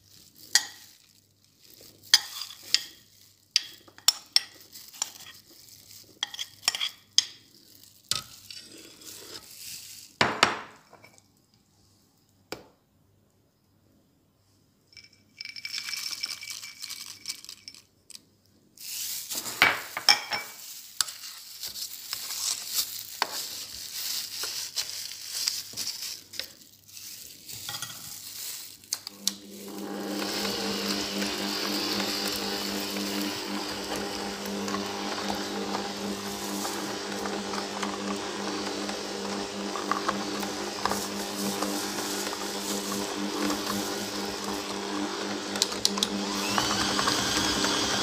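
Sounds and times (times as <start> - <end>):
dough stirred by hand: 20.6 - 48.0
stand mixer motor running: 29.2 - 48.0.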